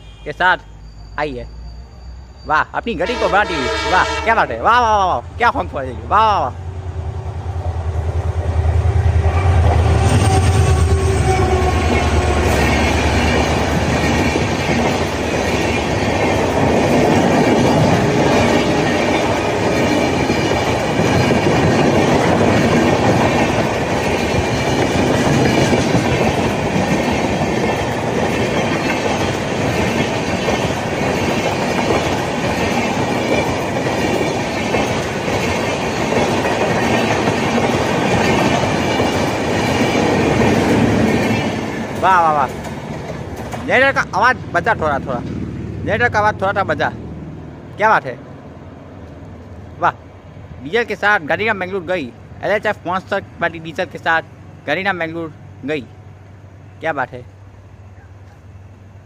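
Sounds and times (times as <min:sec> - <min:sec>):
diesel locomotive engine drone: 0:00.0 - 0:59.0
train rumbling past: 0:00.0 - 0:59.0
wheels clattering over rail joints: 0:12.0 - 0:46.6.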